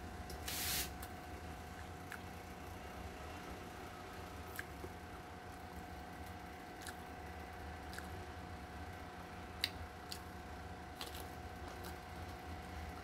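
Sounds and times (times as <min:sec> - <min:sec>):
steady hum: 0:00.0 - 0:13.0
person chewing food: 0:06.2 - 0:08.3, 0:11.0 - 0:13.0.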